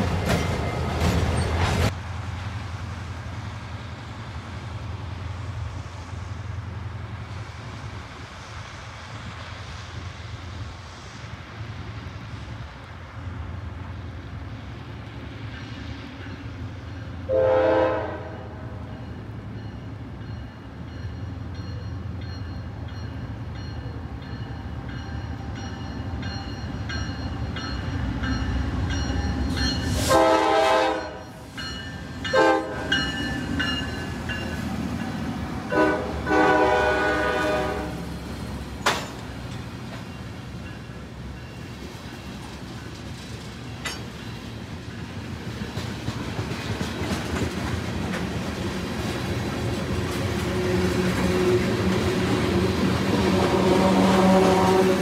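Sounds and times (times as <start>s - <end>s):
train wheels clattering: 0.0s - 2.0s, 38.6s - 55.0s
diesel locomotive engines rumbling: 0.0s - 55.0s
train horn blasts: 17.2s - 18.9s, 29.9s - 31.4s, 32.3s - 33.1s, 35.7s - 38.1s, 50.4s - 55.0s.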